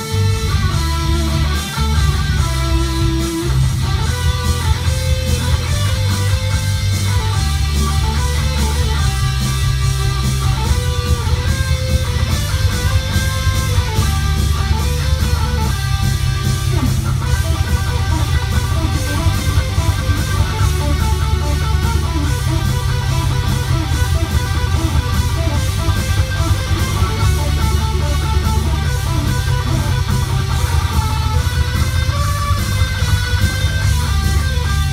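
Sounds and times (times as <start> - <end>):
electric guitar melody: 0.0 - 34.9.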